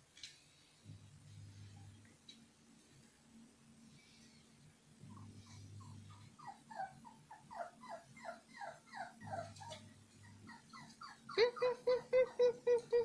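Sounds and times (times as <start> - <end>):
puppy whimpering and whining: 5.1 - 13.0
puppy yipping: 5.8 - 12.2.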